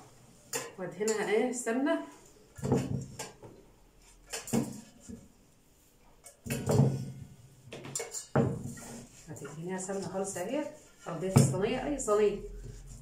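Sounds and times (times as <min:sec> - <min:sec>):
brush scraping bowl and pan: 0:08.0 - 0:13.0.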